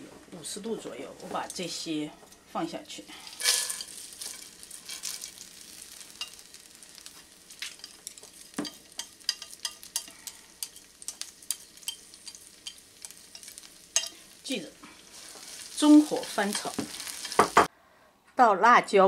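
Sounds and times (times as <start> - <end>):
faint oil sizzle: 0.3 - 17.7
dried spices rattling into pan: 3.2 - 17.7.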